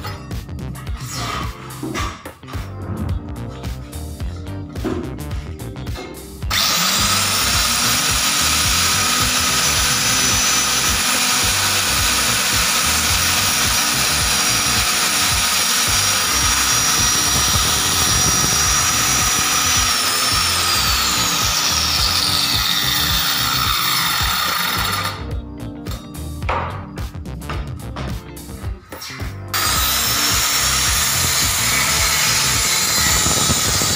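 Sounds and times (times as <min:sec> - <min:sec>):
electric grooving tool whine: 0:06.4 - 0:25.4, 0:29.5 - 0:33.9.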